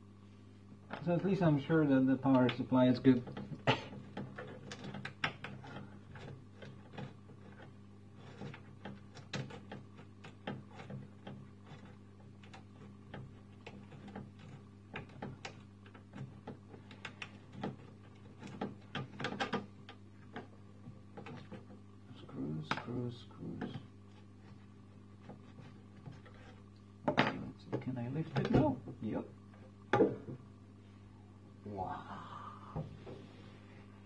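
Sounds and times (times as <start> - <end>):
low electrical hum: 0.0 - 34.0
hands tapping and rattling fittings: 2.4 - 21.8.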